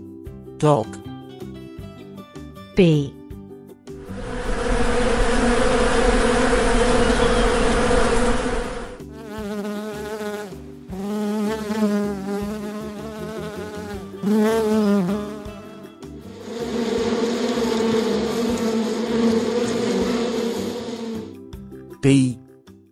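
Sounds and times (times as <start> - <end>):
bees humming at a hive: 4.0 - 21.4
single bee buzzing: 4.0 - 21.4.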